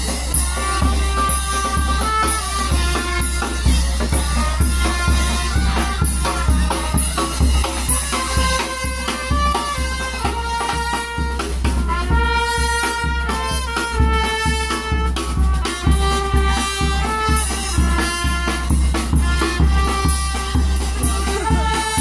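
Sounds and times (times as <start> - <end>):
steady drum beat: 0.0 - 22.0
trumpets playing melody: 0.0 - 22.0.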